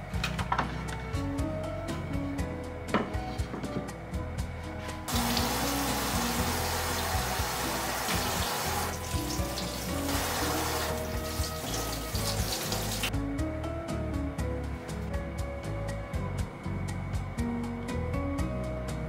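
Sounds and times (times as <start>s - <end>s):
soft background music: 0.0s - 19.0s
tap water running into sink: 5.1s - 13.1s.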